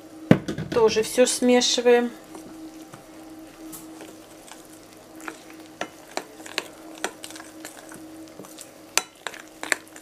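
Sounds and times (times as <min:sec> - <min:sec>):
low hum: 0:01.1 - 0:10.0
spoon scraping batter in bowl: 0:03.7 - 0:10.0.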